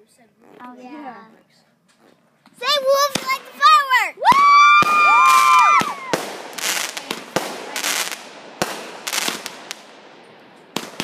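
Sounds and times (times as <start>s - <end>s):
fireworks crackling: 1.9s - 11.0s
fireworks bangs: 2.6s - 11.0s.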